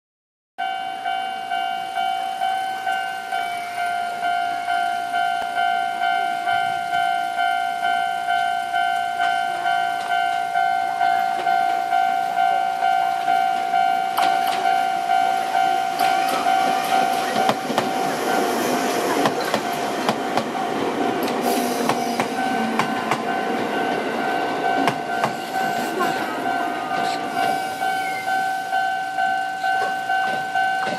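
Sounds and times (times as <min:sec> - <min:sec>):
electric train passing: 0:00.6 - 0:30.9
level-crossing alarm ringing: 0:00.6 - 0:30.9
train wheel clatter: 0:13.1 - 0:30.9.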